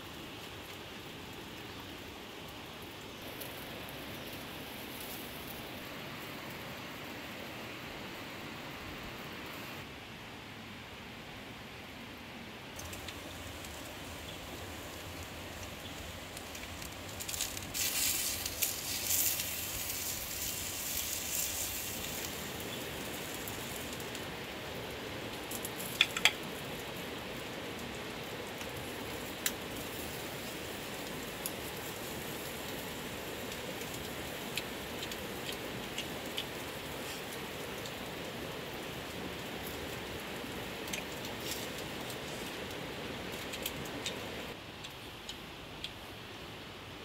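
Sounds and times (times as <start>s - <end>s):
wood fire crackling: 0.0s - 10.2s, 10.9s - 47.0s
fish sizzling on hot stone: 2.7s - 6.3s, 12.8s - 44.4s.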